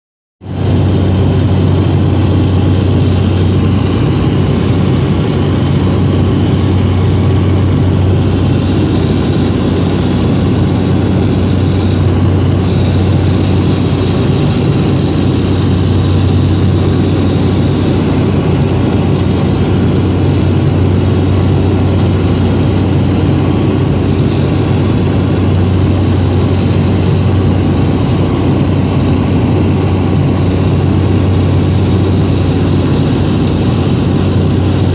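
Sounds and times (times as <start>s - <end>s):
propeller aircraft engine drone: 0.4s - 34.9s.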